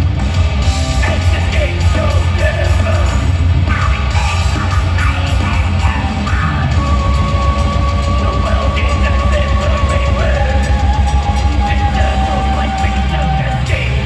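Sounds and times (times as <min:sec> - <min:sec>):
distorted guitars: 0:00.0 - 0:14.0
heavy drums and bass: 0:00.0 - 0:14.0
harsh screamed vocal: 0:01.0 - 0:14.0.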